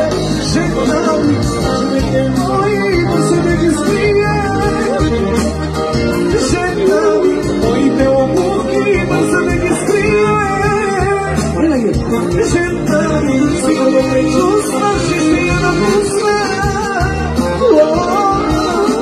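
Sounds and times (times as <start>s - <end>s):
amplified backing music with bass: 0.0s - 19.0s
man singing into microphone: 0.0s - 19.0s.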